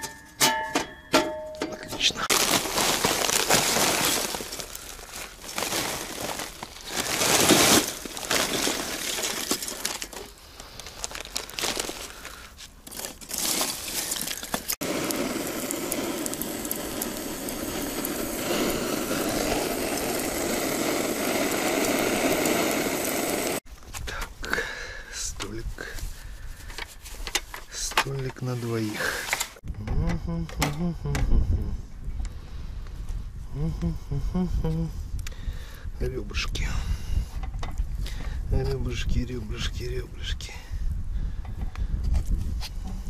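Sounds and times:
crinkling and crumpling handling noise: 0:01.7 - 0:14.9, 0:25.4 - 0:29.6
steady crackling hiss: 0:02.1 - 0:29.6.

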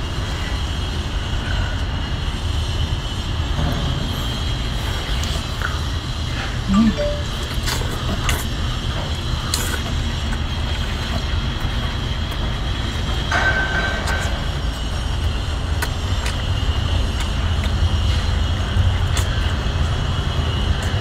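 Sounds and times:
wet slurp: 0:04.3 - 0:13.3, 0:14.0 - 0:21.0.

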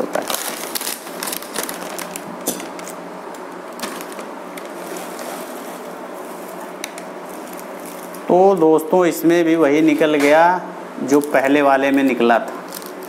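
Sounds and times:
scissors cutting plastic packet: 0:00.0 - 0:04.7, 0:12.7 - 0:13.0.

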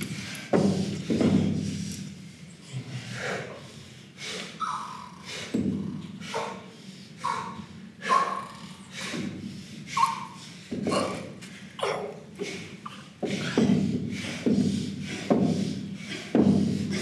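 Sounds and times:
heavy breathing with grunts: 0:00.0 - 0:17.0.

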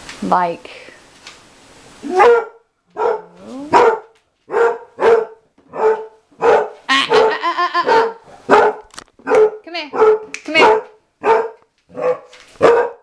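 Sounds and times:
dog whining: 0:02.0 - 0:04.1
dog barking: 0:02.0 - 0:13.0.

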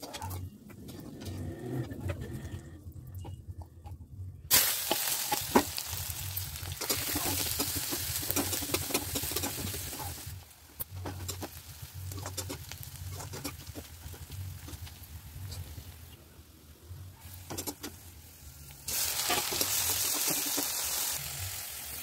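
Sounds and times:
onions sizzling in hot oil: 0:04.5 - 0:16.2, 0:17.1 - 0:22.0.

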